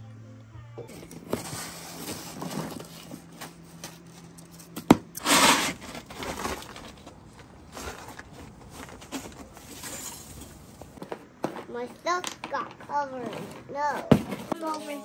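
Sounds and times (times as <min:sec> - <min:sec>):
snow crunching and scraping: 0:00.9 - 0:12.2.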